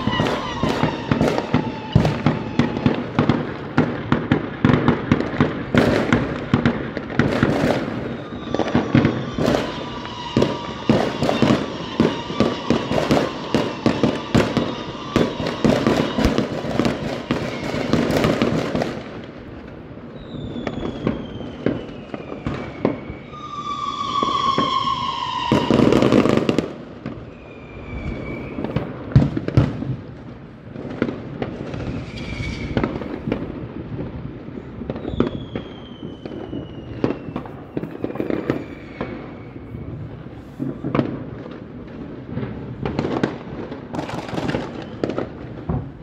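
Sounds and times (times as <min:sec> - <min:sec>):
rockets whistling: 0:00.0 - 0:06.4, 0:07.0 - 0:19.0, 0:20.1 - 0:29.1, 0:31.5 - 0:33.6, 0:34.6 - 0:40.9, 0:44.0 - 0:46.0
fireworks bangs and crackling: 0:00.0 - 0:46.0.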